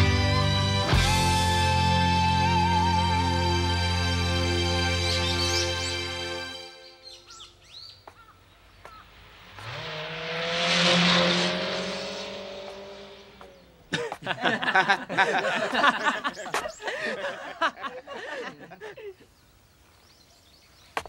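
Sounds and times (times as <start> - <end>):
birds chirping: 4.9 - 9.9, 11.9 - 21.0
car passing by: 8.6 - 13.8.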